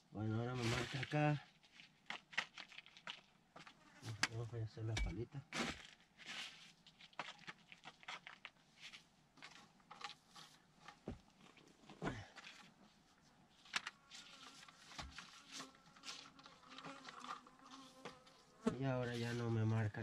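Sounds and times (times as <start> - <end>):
hand shovel digging soil and stones: 0.4 - 4.3, 5.0 - 10.2, 13.6 - 20.0.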